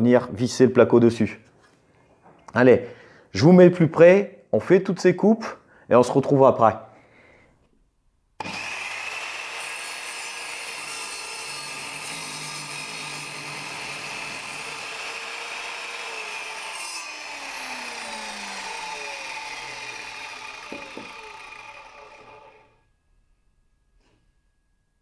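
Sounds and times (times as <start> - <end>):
mitre saw motor whine: 8.4 - 10.8, 11.4 - 22.8
saw blade rasping wood: 8.4 - 22.7.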